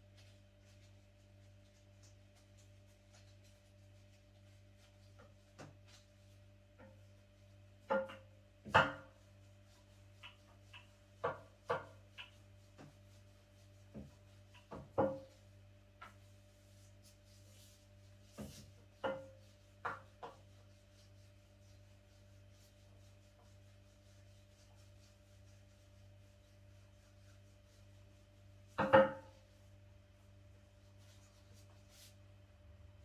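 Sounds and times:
kitchen items knocking on wooden table: 28.8s - 29.3s.

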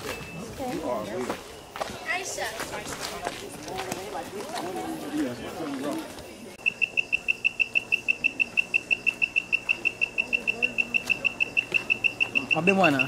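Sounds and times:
animal chirping: 6.6s - 13.0s.

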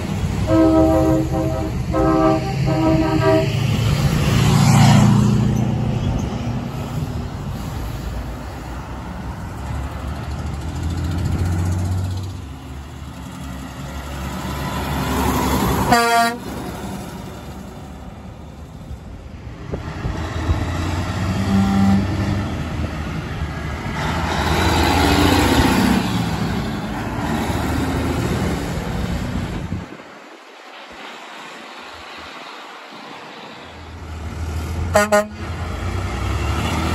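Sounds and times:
heavy trucks driving past: 0.0s - 36.9s
truck air horn blast: 0.4s - 3.8s, 15.8s - 16.6s, 21.3s - 22.4s, 34.9s - 35.5s.

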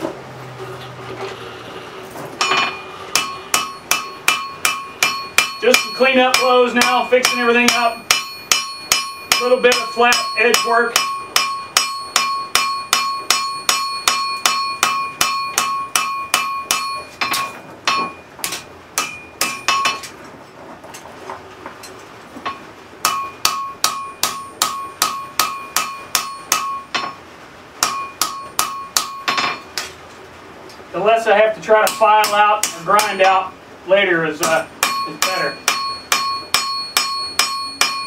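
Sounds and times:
hammer ringing on anvil: 2.4s - 20.0s, 22.5s - 27.2s, 27.8s - 29.7s, 31.8s - 33.5s, 34.4s - 38.0s.

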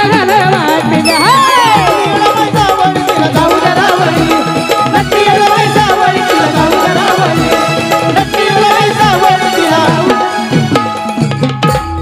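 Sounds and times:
held melody line: 0.9s - 5.3s
hand drums beating: 10.0s - 12.0s.

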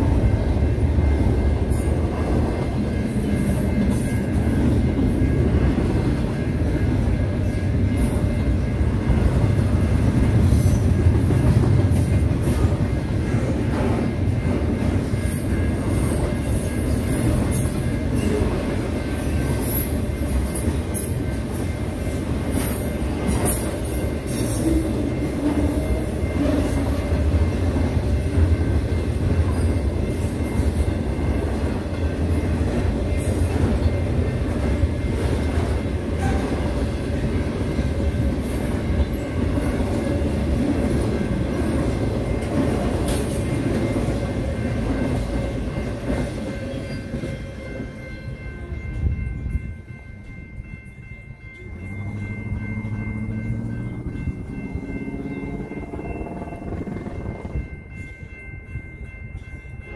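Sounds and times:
train wheels rumbling on rail: 0.0s - 59.9s
electronic crossing bell ringing: 41.1s - 59.9s.

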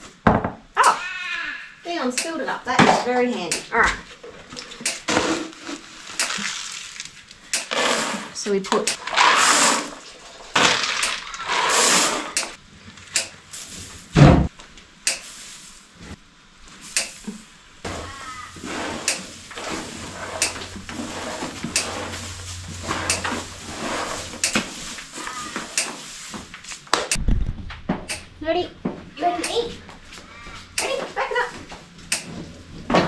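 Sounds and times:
heavy thump: 14.2s - 14.5s.

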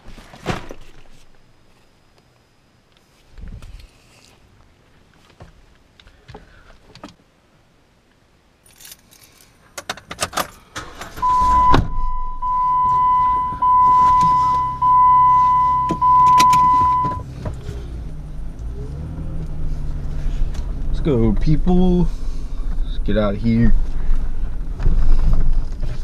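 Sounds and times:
keys jangling: 8.6s - 9.6s
car engine starting and idling: 10.5s - 26.0s
electronic warning chime: 11.2s - 17.2s.

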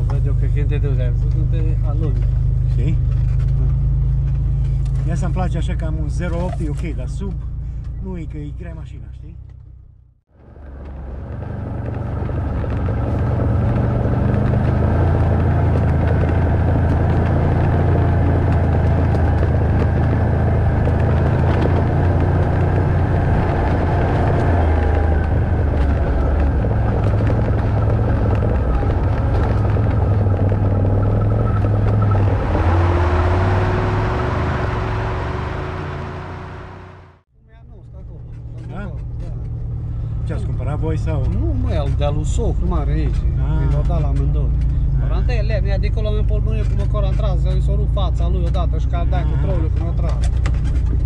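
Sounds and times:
vehicle engine running: 0.0s - 51.0s
knocks and rattles over bumps: 10.4s - 36.9s, 38.2s - 51.0s.

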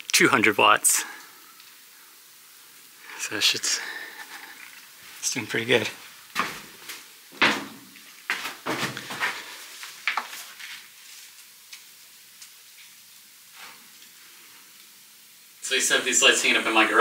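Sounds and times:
short knocks and scuffs: 6.4s - 9.4s.

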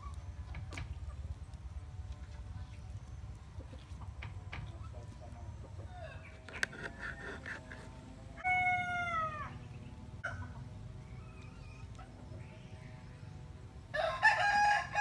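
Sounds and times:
rooster crowing: 8.4s - 9.6s, 13.9s - 15.0s.

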